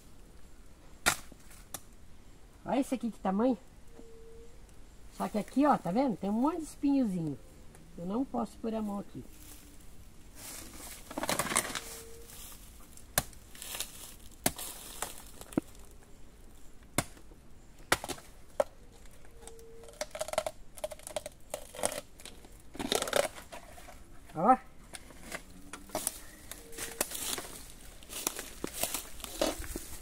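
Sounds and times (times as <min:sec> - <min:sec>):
dry leaves crackling and rustling: 0:08.7 - 0:16.7, 0:25.0 - 0:30.0.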